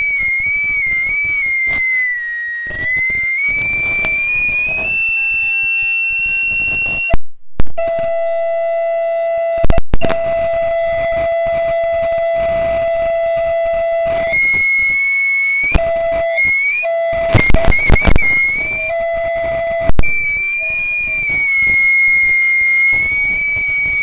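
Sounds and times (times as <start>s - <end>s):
audio feedback squeal: 0.0s - 24.0s
steady low-pitched tone: 2.2s - 24.0s
loud pops: 9.6s - 10.5s, 15.6s - 24.0s.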